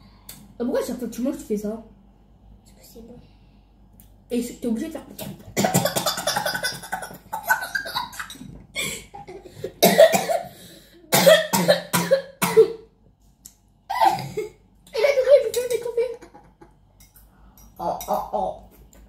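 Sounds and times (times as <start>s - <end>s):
person coughing: 8.8s - 12.9s, 13.9s - 14.6s.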